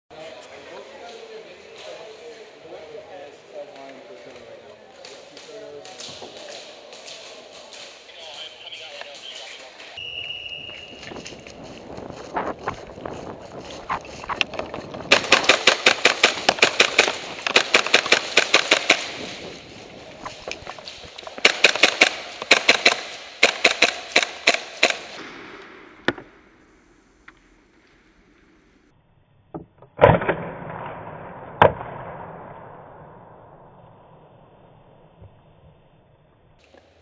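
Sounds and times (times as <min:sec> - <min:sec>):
airsoft guns firing rapidly: 0:15.1 - 0:19.4, 0:21.3 - 0:25.2.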